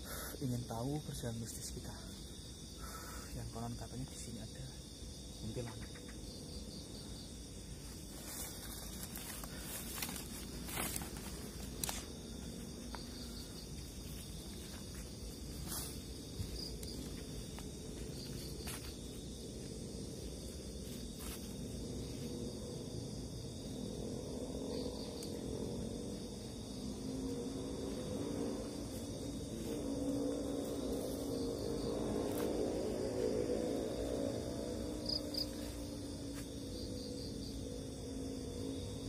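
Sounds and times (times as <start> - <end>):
night insects chirring: 0.0 - 39.0
footsteps rustling through vegetation: 7.7 - 22.4.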